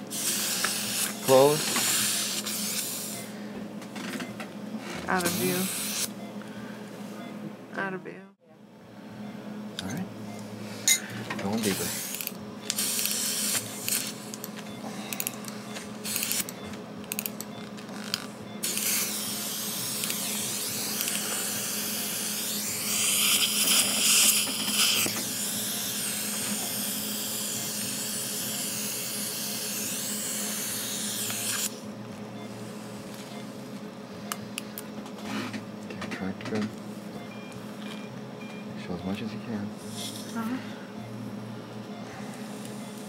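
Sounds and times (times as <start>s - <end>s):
dental suction hissing: 11.7s - 14.1s, 18.6s - 31.7s.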